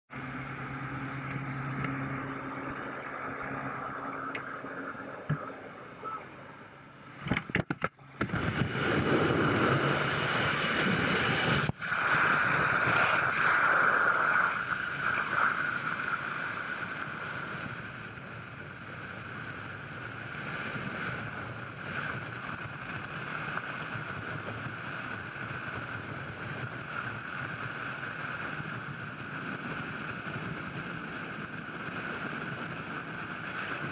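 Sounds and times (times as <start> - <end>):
plane engines droning: 0.1 - 33.9
freefall wind rushing: 8.0 - 33.9.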